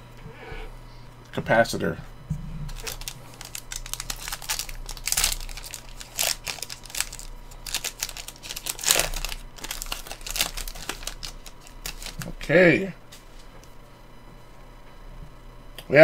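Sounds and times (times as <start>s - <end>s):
wrapper torn and crinkled: 2.7s - 12.4s.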